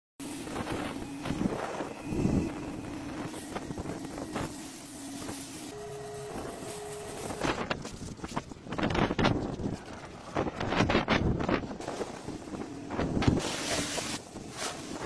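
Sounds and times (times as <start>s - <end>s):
pressure washer humming: 0.2s - 8.8s, 11.8s - 15.0s
wind buffeting microphone: 7.4s - 13.6s.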